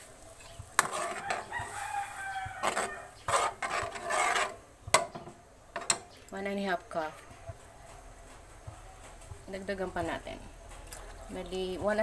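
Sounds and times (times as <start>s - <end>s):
metal spoon scraping wok: 0.0s - 7.6s.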